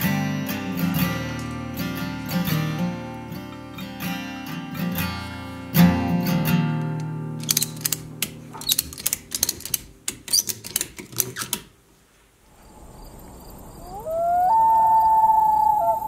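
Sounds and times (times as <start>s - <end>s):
wailing animal call: 13.7s - 16.0s.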